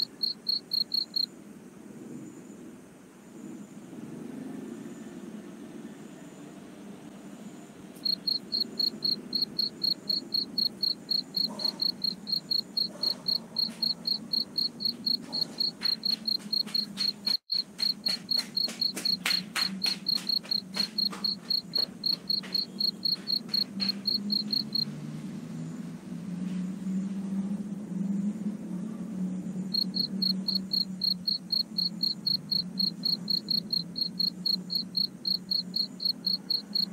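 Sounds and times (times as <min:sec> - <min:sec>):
cricket chirping: 0:00.0 - 0:01.4, 0:07.3 - 0:25.0, 0:29.4 - 0:36.9.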